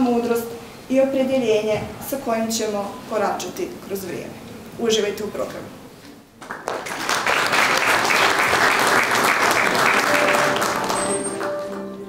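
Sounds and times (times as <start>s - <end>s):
audience applauding: 6.4s - 12.0s
quiet instrumental music: 9.7s - 12.0s.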